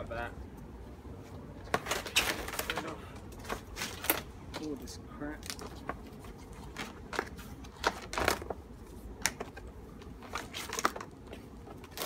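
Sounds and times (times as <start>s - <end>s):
crinkling scrape: 10.2s - 12.0s.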